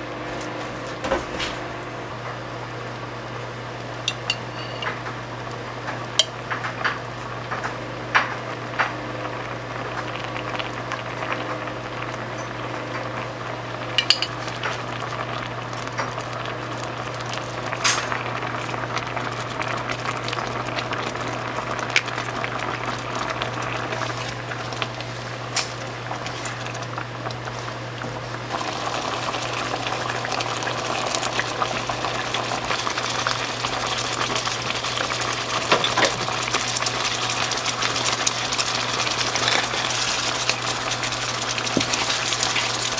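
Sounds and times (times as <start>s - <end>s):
sauce bubbling in a frying pan: 2.3s - 42.9s.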